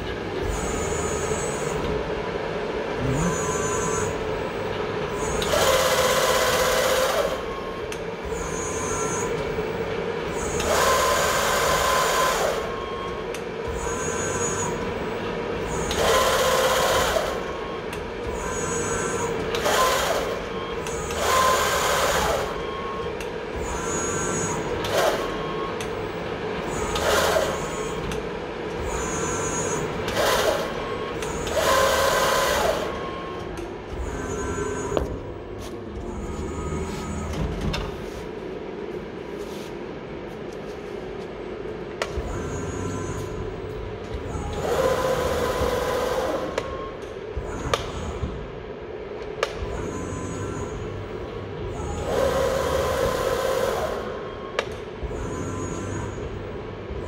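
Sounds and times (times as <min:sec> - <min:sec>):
machine hum: 0:00.0 - 0:57.0
servo drives whirring: 0:02.8 - 0:07.6.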